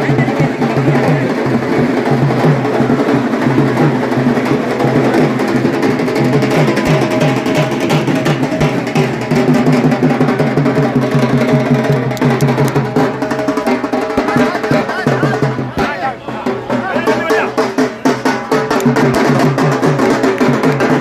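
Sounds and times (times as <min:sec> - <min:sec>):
drums playing fast rhythm: 0:00.0 - 0:21.0
large crowd din: 0:00.0 - 0:21.0.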